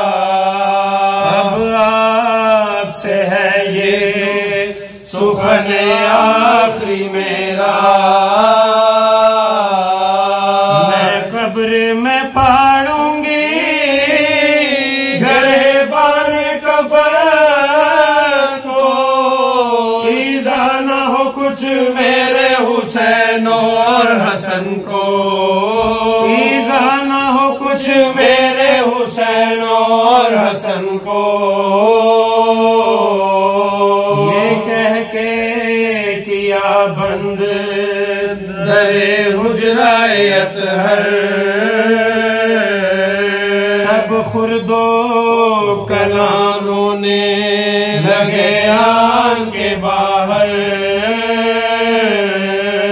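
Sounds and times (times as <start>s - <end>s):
low vocal drone: 0.0s - 52.9s
lead male voice chanting: 10.5s - 14.4s, 34.0s - 35.5s.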